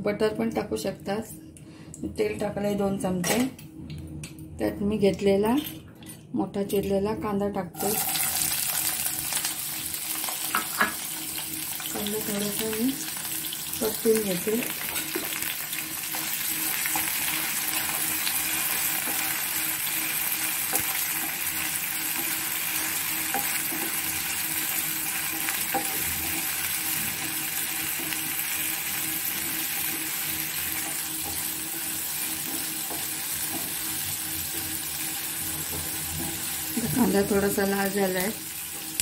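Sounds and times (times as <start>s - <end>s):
onions sizzling in oil: 7.8s - 39.0s
spatula tapping and scraping pan: 32.3s - 34.7s.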